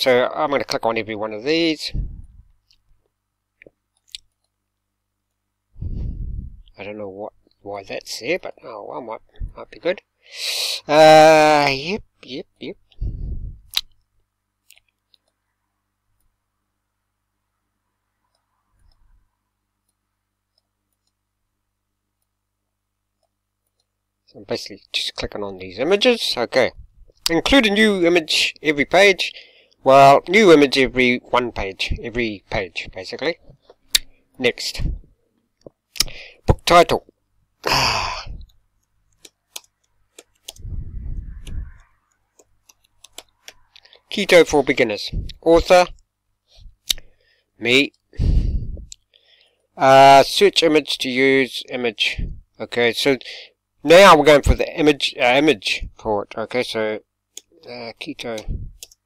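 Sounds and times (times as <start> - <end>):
computer mouse clicks: 41.4 - 43.6, 58.3 - 59.0.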